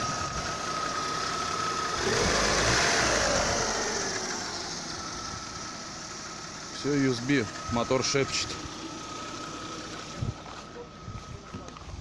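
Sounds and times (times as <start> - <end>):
car engine idling: 0.0 - 12.0.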